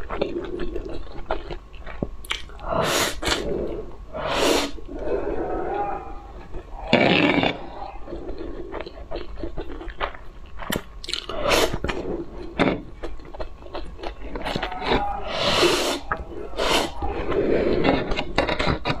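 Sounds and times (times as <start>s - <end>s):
mouth clicks: 2.2s - 10.1s
slurping noodles: 2.3s - 10.0s, 10.7s - 12.8s, 14.2s - 19.0s.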